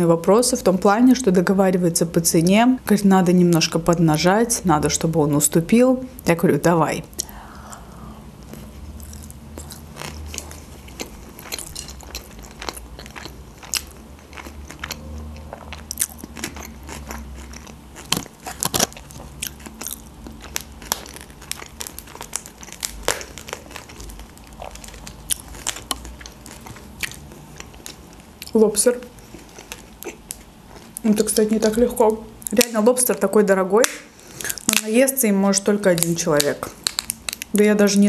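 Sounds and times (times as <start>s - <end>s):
chewing and mouth clicks: 8.4s - 28.6s, 29.2s - 31.4s
lobster shell cracking: 9.0s - 14.6s, 15.9s - 28.6s, 35.9s - 37.7s.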